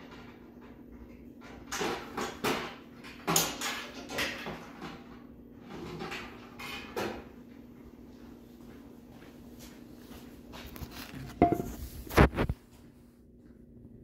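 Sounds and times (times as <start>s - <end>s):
metal pail knocking and clanking: 11.3s - 11.8s.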